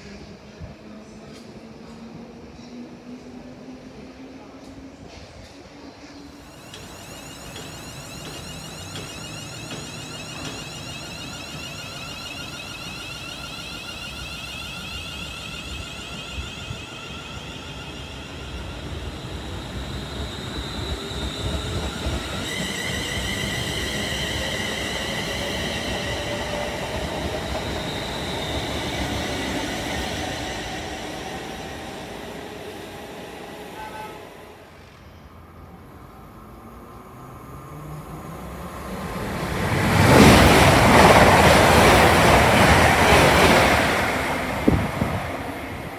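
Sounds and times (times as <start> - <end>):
train traction motors whining: 6.4 - 34.9
wheels rumbling on rail: 36.5 - 45.9.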